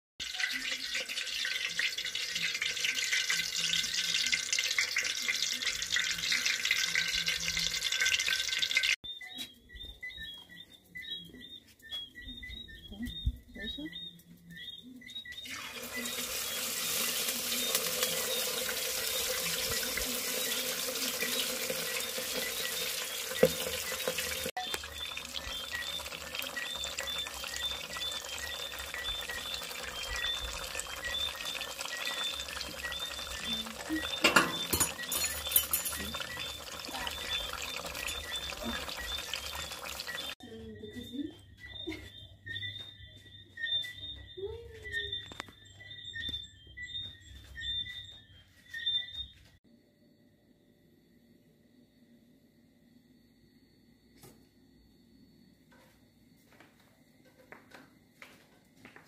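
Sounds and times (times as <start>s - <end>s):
food sizzling in hot oil: 0.2s - 9.0s, 15.4s - 40.4s
faint high chirping: 9.0s - 50.1s.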